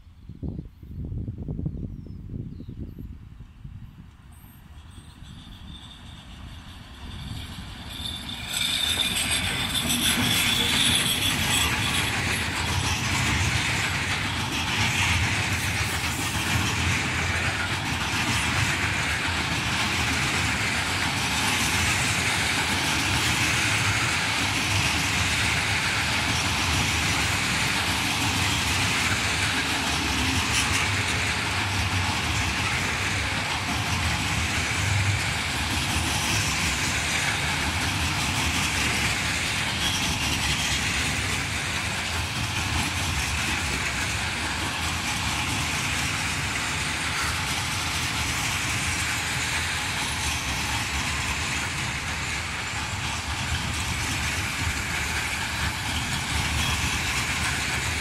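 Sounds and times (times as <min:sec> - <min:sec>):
freight train passing: 0:00.0 - 0:58.0
train wheels on rails: 0:03.4 - 0:58.0.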